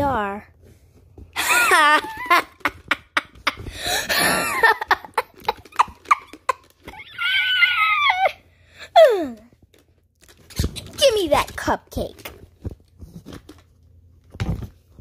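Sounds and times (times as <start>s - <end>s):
child high-pitched cry: 6.9s - 8.4s.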